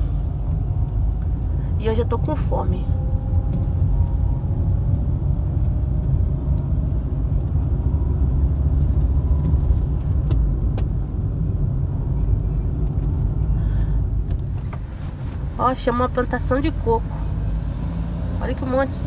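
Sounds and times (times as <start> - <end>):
car engine and tyre rumble: 0.0 - 19.0.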